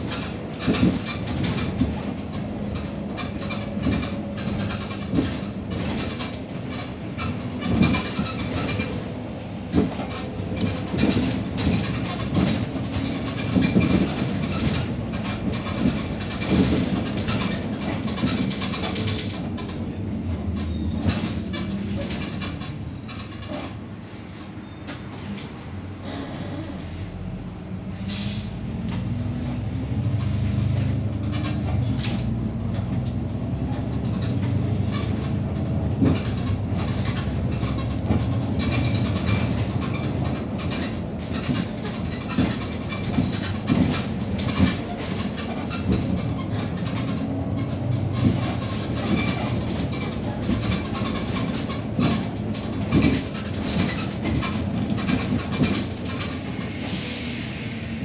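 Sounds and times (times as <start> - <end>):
cabin rattles and knocks: 0.0 - 9.0, 9.6 - 19.7, 30.9 - 56.4
bus engine drone: 0.0 - 58.0.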